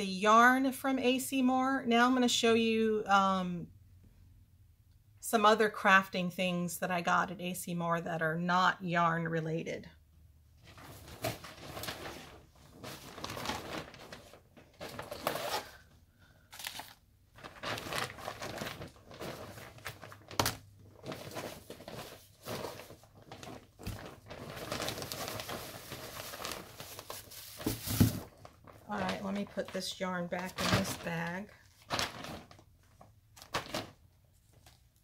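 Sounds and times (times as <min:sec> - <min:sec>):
shopping bag rustling: 0:10.7 - 0:15.8, 0:16.5 - 0:32.6.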